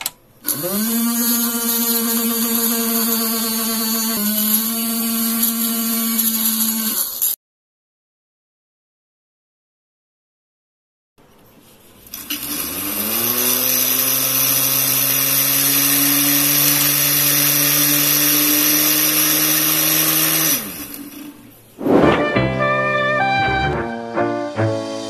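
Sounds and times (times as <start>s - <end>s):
music: 21.8s - 25.0s.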